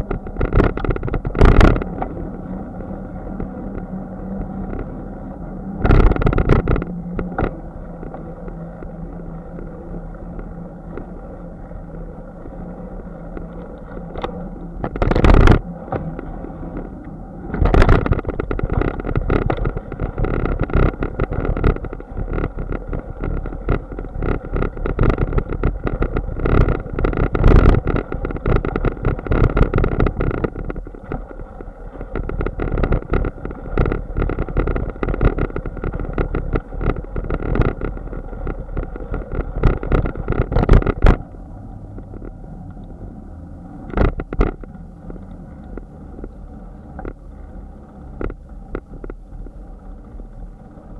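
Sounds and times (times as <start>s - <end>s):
bike rattling over bumpy grass: 0.0s - 9.8s, 13.2s - 42.4s
bicycle rolling on road: 0.0s - 50.9s.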